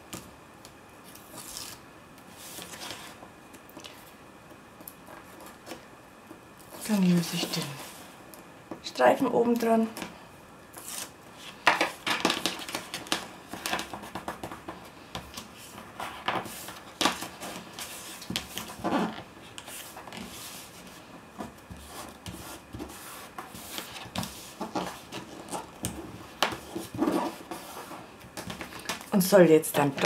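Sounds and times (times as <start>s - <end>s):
paper rustling and crinkling: 10.8s - 29.1s.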